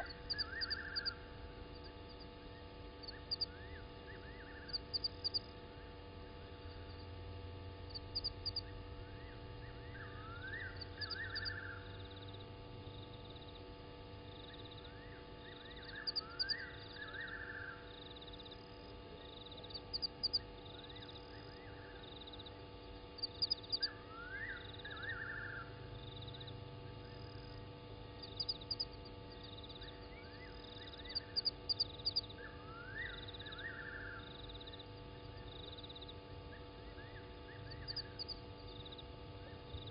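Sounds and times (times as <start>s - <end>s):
steady electrical hum: 0.0s - 39.9s.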